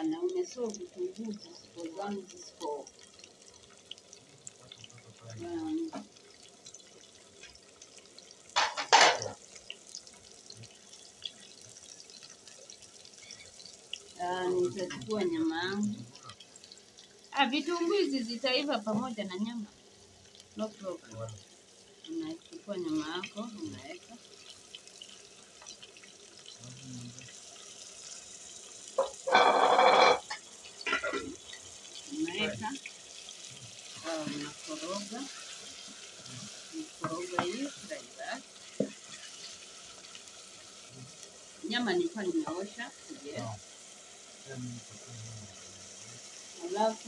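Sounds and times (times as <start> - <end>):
meat splashing and hissing in pan: 0.0 - 47.0
onions sizzling in oil: 0.0 - 47.0
scraping in pot: 29.0 - 31.4.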